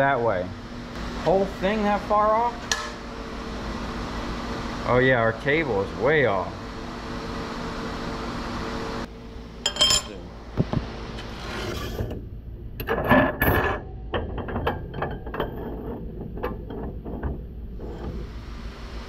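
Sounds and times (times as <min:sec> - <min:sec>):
machine hum: 0:00.0 - 0:19.0
metal tools clinking: 0:09.6 - 0:10.3.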